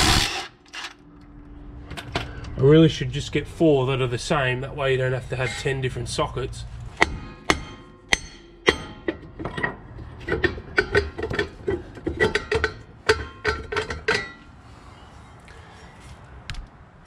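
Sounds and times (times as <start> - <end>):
metal brake drum clanking: 7.0 - 14.5.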